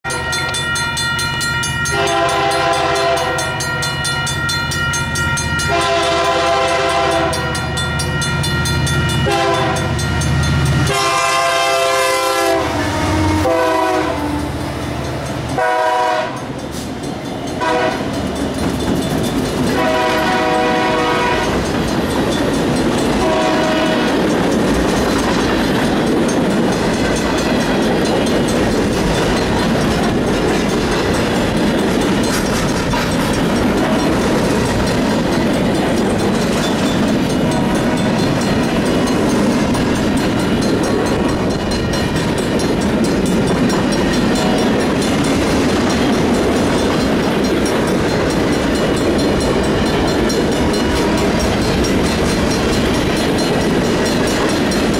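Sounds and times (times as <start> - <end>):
train wheels clattering on rails: 0.1 - 54.9
train air horn blasts: 1.7 - 4.4, 5.5 - 8.4, 9.1 - 10.1, 10.8 - 16.6, 17.6 - 18.2, 19.7 - 21.6, 23.2 - 24.2
diesel locomotive rumble: 1.9 - 54.9.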